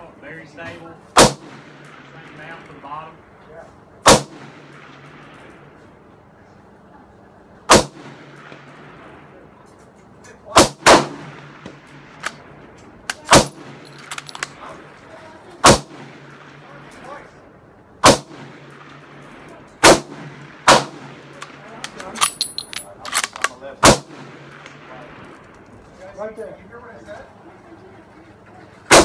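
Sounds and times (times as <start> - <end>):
rifle shots: 1.2 - 2.5, 4.0 - 5.7, 7.7 - 9.1, 10.5 - 14.6, 15.6 - 17.2, 18.0 - 25.7
rifle bolt clicks: 14.0 - 14.6, 21.4 - 23.6.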